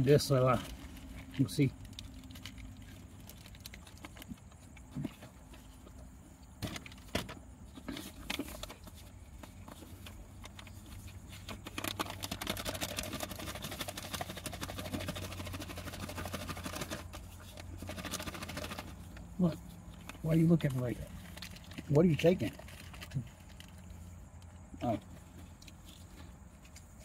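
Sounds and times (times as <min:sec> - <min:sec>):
paper wrapper crinkling: 0:00.5 - 0:04.8, 0:09.8 - 0:24.0.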